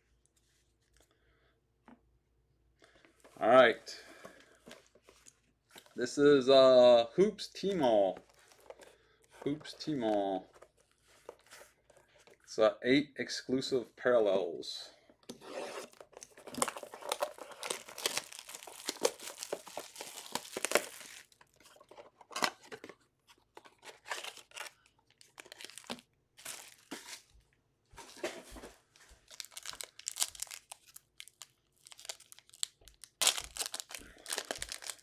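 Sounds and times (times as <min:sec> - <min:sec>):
foil packs rustling: 0:15.8 - 0:22.6, 0:23.7 - 0:27.3, 0:28.0 - 0:35.0
packaging crinkling and tearing: 0:15.8 - 0:27.3, 0:29.1 - 0:35.0
foil pack torn open: 0:15.9 - 0:21.4, 0:29.3 - 0:35.0.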